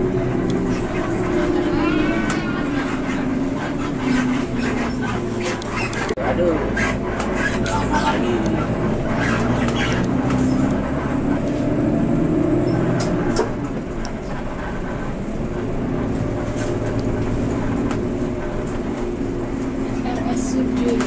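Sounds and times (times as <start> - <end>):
diesel engine running: 0.0 - 21.0.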